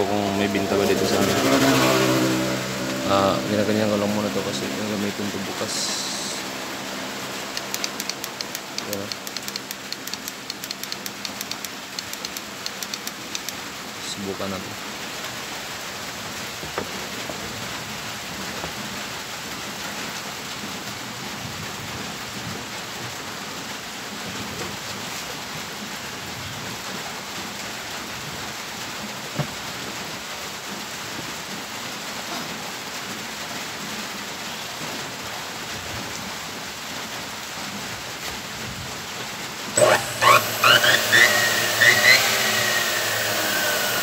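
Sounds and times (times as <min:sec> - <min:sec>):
sharp click: 0:07.5 - 0:13.6
steady rain falling: 0:11.1 - 0:39.8.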